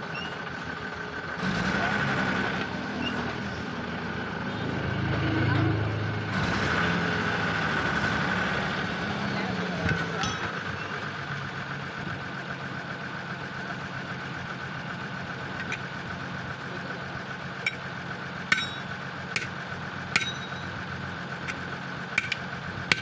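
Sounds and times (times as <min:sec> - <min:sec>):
engine idling: 0:00.0 - 0:23.0
hammer on steel wheel rim: 0:18.5 - 0:20.8, 0:22.2 - 0:23.0.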